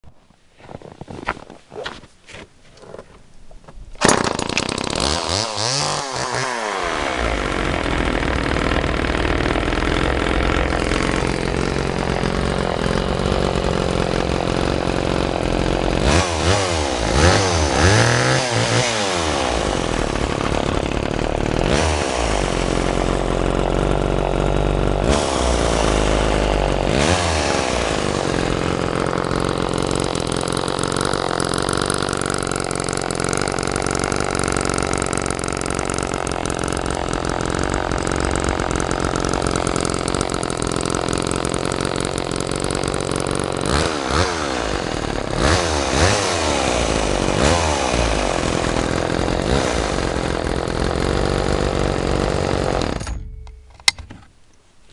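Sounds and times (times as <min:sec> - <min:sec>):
chainsaw running: 0:04.0 - 0:54.1.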